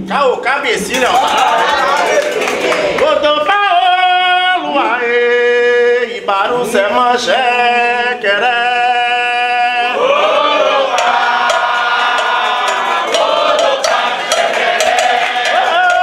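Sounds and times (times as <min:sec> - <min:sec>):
chorus chanting held notes: 0:09.5 - 0:16.0
sharp percussion strikes: 0:10.9 - 0:16.0.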